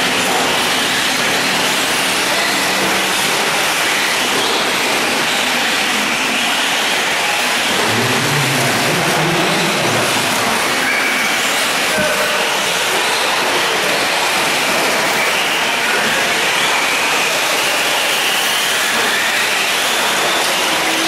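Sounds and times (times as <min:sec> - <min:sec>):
low hum: 0:07.6 - 0:11.1.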